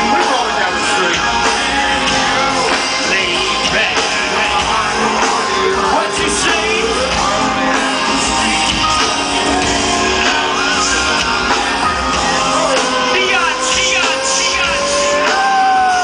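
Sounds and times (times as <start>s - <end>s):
crowd singing: 0.0s - 16.0s
loud hip-hop band music: 0.0s - 16.0s.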